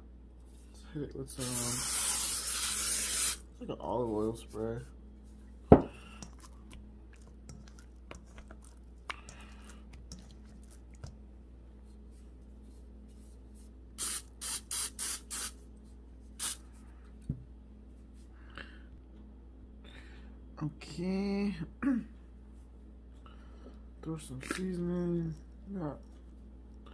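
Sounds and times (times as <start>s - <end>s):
cooking spray spraying: 1.4s - 3.5s, 14.0s - 15.6s, 16.4s - 16.6s.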